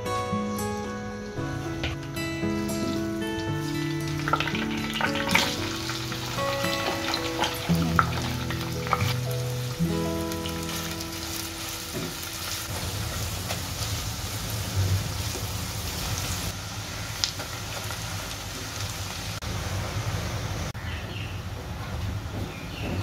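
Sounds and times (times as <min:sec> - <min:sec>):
musical notes: 0:00.0 - 0:12.7
onions sizzling in hot oil: 0:02.6 - 0:20.7.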